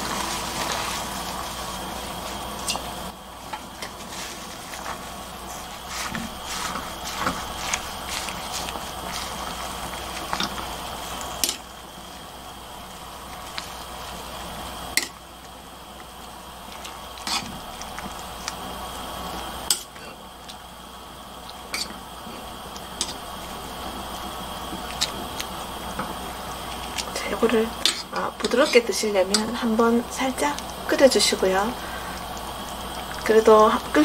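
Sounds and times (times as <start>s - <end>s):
water bubbling in a pot: 0.0s - 34.0s
metal tongs clicking on pot: 11.4s - 11.6s, 29.2s - 29.6s.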